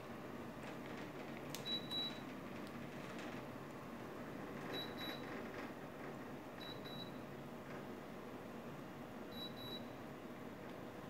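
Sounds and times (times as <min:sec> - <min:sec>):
fan hiss: 0:00.0 - 0:11.0
air conditioner double beeps: 0:01.6 - 0:02.3, 0:04.7 - 0:05.4, 0:06.6 - 0:07.3, 0:09.3 - 0:10.0.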